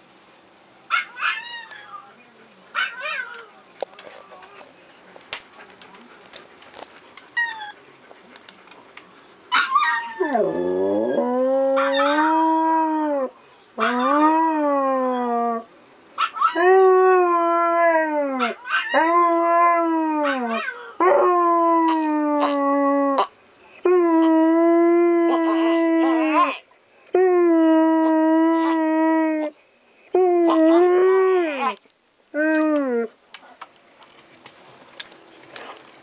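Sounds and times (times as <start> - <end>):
dog howling: 9.5 - 15.7, 16.3 - 26.6.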